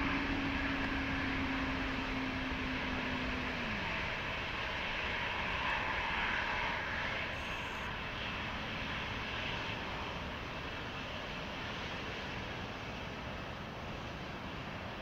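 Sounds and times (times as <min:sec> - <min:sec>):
jet engines roaring at takeoff: 0:00.0 - 0:15.0.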